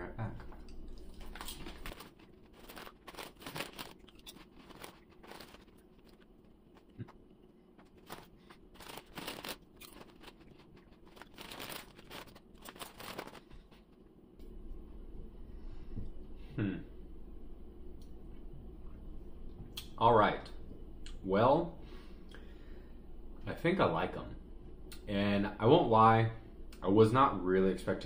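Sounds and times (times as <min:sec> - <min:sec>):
chip bag crinkling: 0:01.0 - 0:14.0
chips crunching: 0:01.0 - 0:14.0.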